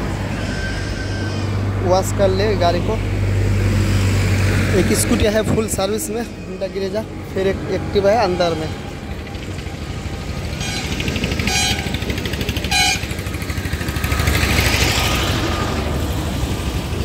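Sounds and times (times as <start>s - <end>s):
traffic rumble: 0.0s - 17.0s
vehicle passing by: 1.4s - 17.0s
buzzy vehicle horn beeps: 10.5s - 13.2s.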